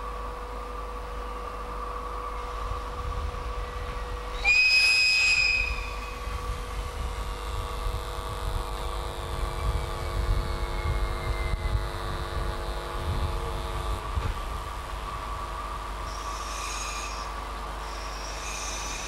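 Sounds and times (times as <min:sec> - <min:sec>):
background hum: 0:00.0 - 0:19.0
electric train rumbling: 0:00.0 - 0:19.0
train whistle blast: 0:04.3 - 0:06.5, 0:16.1 - 0:19.0.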